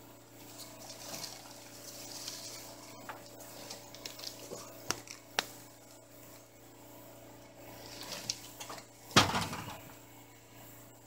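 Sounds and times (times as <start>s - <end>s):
rustling through brush: 0.4s - 6.5s.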